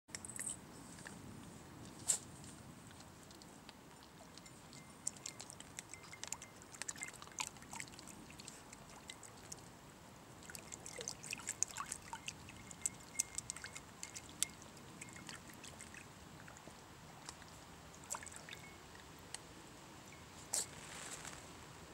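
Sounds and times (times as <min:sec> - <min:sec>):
puppies lapping water: 0:02.8 - 0:19.3.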